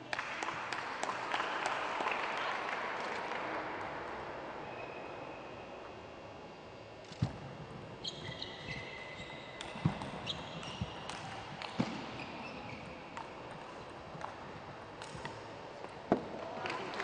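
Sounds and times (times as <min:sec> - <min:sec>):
shoe squeaks on floor: 0:08.0 - 0:11.0.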